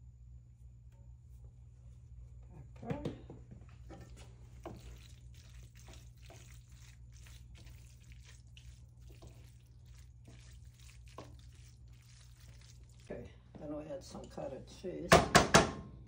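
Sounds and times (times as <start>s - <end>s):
wooden spoon scraping a pan: 3.9s - 13.2s.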